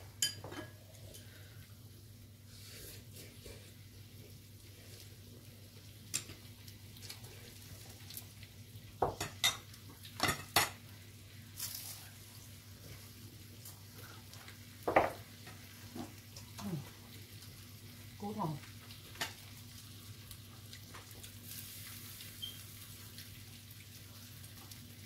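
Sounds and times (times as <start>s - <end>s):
faint sizzle: 0.0s - 25.0s
utensils clinking on ceramic dishes: 0.2s - 0.8s.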